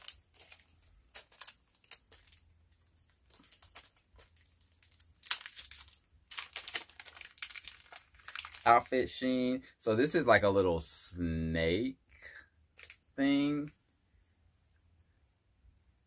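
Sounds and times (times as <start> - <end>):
packet crinkling: 0.0 - 9.1, 12.8 - 13.0.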